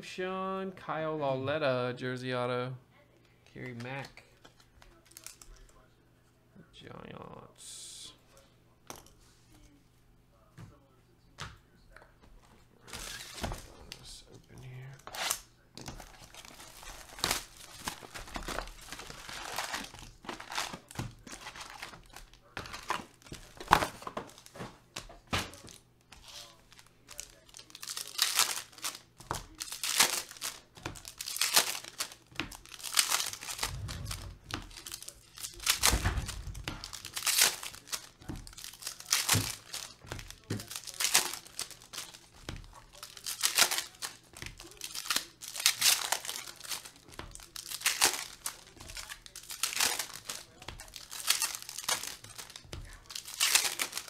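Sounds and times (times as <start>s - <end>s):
foil wrappers crinkling and tearing: 3.6s - 5.6s, 12.9s - 54.0s.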